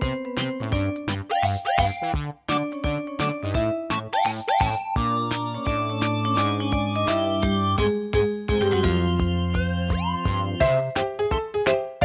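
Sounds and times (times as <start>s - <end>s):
upbeat electronic music: 0.0s - 11.1s.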